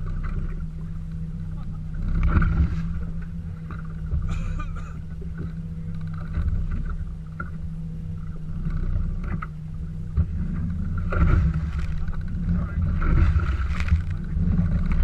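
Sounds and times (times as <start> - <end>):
steady low hum: 0.0 - 15.0
waves slapping against hull: 0.0 - 15.0
water splash: 10.2 - 15.0.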